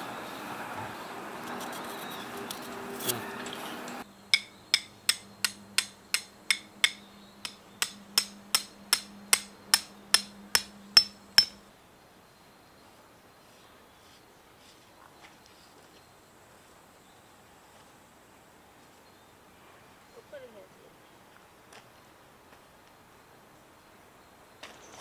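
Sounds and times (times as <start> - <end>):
background noise: 0.0 - 25.0
hammer striking tent stake: 4.3 - 11.6.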